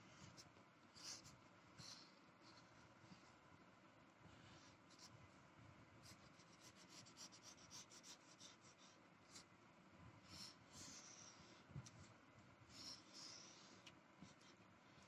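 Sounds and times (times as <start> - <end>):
crayon scratching on paper: 0.3 - 2.7, 6.0 - 9.5, 12.7 - 15.0.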